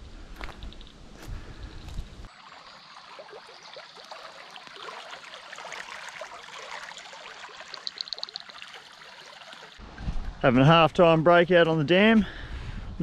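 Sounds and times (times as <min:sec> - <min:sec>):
creek water trickling: 0:00.4 - 0:10.4
high evenly spaced ticks: 0:00.5 - 0:01.0, 0:07.6 - 0:08.6.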